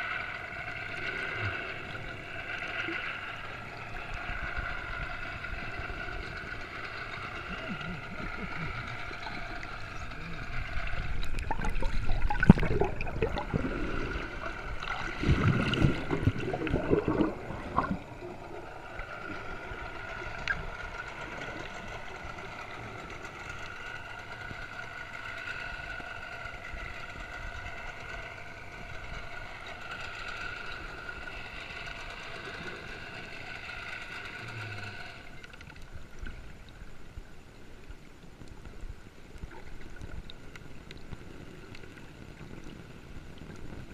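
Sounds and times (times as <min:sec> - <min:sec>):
water splashing and sloshing: 0:00.0 - 0:24.2
boat engine whining drone: 0:00.0 - 0:43.9.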